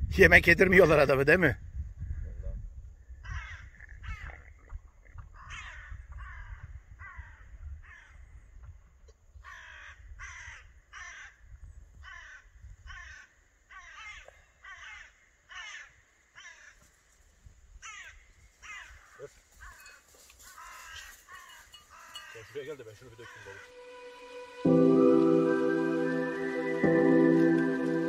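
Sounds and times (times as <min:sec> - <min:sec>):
crows cawing: 0:03.2 - 0:04.4, 0:05.4 - 0:08.2, 0:09.4 - 0:11.4, 0:12.0 - 0:16.9, 0:17.8 - 0:24.0.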